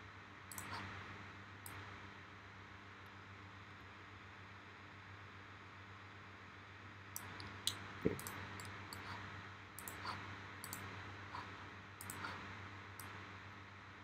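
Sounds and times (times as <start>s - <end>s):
low steady hum: 0.0s - 14.0s
mouse and keyboard clicks: 0.5s - 0.9s, 7.2s - 9.2s, 9.8s - 12.4s.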